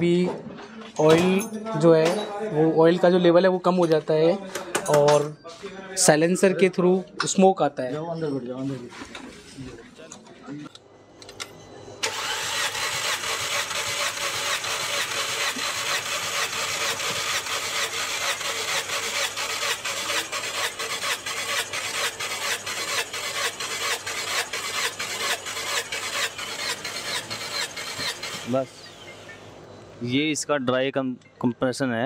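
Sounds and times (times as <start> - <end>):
engine cranking on starter motor: 12.0 - 28.8.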